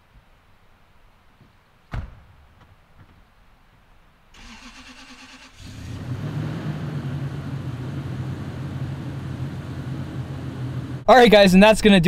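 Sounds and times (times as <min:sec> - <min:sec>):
starter motor cranking: 0:04.4 - 0:06.4
truck engine running: 0:04.4 - 0:11.1.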